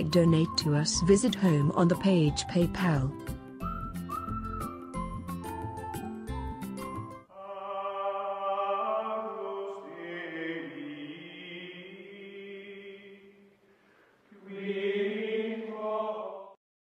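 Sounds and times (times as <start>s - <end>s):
chant-like voices holding notes: 7.3s - 13.5s, 14.3s - 16.6s.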